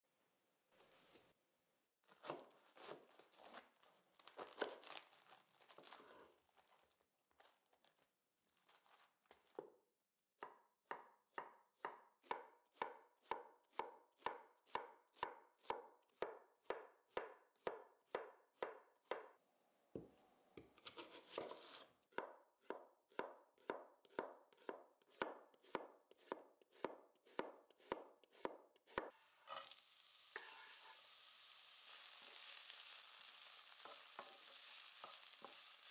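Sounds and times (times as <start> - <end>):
knife chopping cabbage on board: 2.1 - 5.0, 10.4 - 19.3, 20.8 - 29.1
onions sizzling in oil: 29.2 - 35.9.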